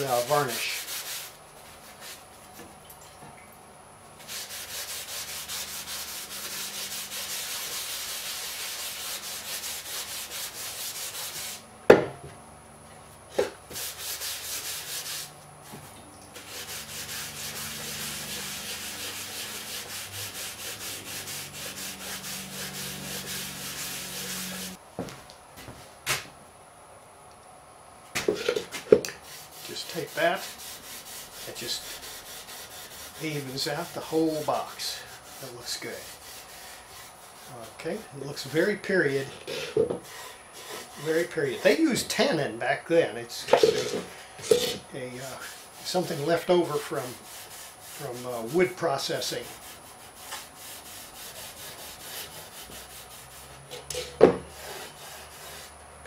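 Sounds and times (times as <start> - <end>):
cloth rag rubbing on wood: 0.0 - 2.4, 4.2 - 11.6, 13.7 - 24.8, 29.2 - 42.2, 43.3 - 55.7
sharp knocks on wood: 11.9 - 12.2.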